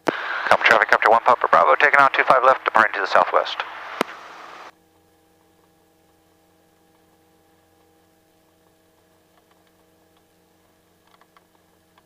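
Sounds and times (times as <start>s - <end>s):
steady intercom tones: 0.1s - 4.7s.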